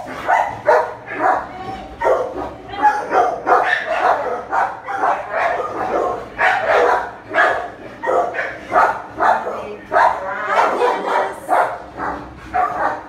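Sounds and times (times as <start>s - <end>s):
dogs barking: 0.0s - 13.0s.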